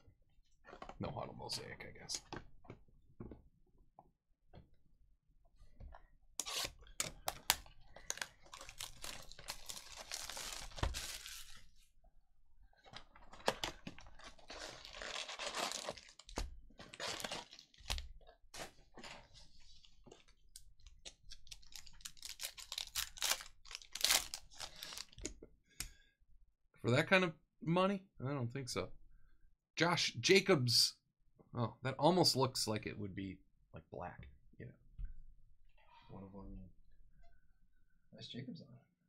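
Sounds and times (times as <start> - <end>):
card packs tearing and crinkling: 6.4 - 11.6, 13.2 - 18.1, 21.4 - 25.2.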